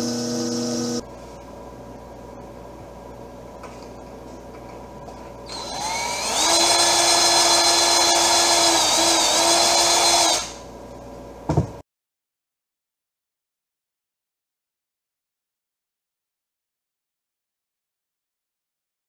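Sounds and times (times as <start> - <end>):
cordless drill whining: 5.5 - 10.6.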